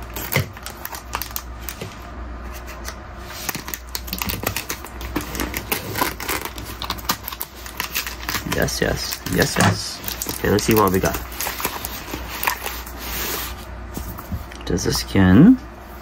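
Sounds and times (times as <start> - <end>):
scissors cutting plastic bag: 0.0 - 1.5, 3.4 - 12.8.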